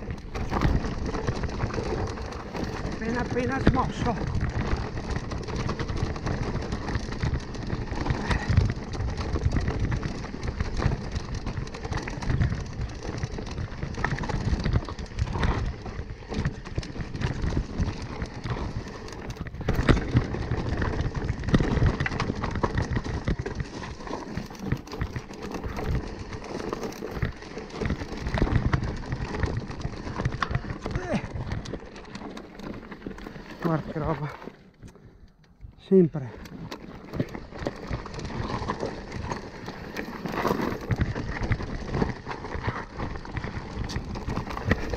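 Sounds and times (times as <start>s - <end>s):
bike knocking and rattling: 0.0s - 44.9s
tyres crunching over loose stones: 0.0s - 44.9s.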